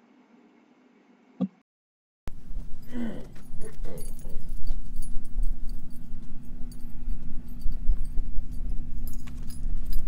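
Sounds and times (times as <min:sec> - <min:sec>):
low machine hum: 0:02.3 - 0:10.0.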